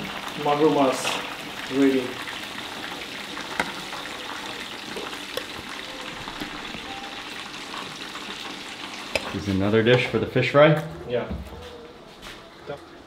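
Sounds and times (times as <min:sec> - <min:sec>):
sizzling hiss of frying: 0:00.0 - 0:10.4.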